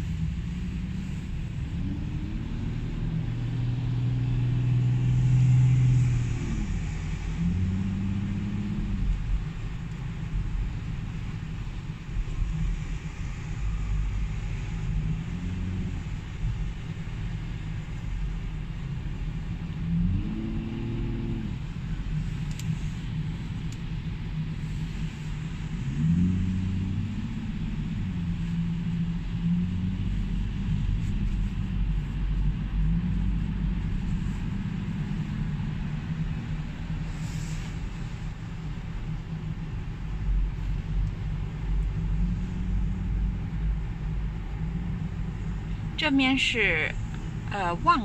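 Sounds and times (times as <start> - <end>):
car engine and road noise: 0.0 - 48.0.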